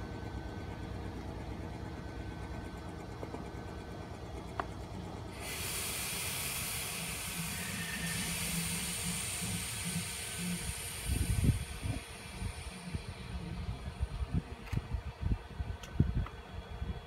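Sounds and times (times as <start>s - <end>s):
low hum: 0.0s - 17.0s
steady hiss: 5.4s - 14.1s.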